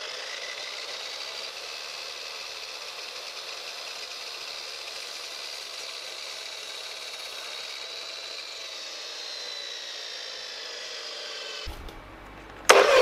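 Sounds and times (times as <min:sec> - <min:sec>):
saw motor whine falling in pitch: 0:00.0 - 0:13.0.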